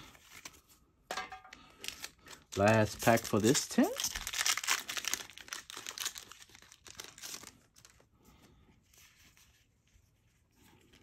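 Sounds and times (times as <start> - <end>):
foil wrapper crinkling and tearing: 1.5 - 8.0.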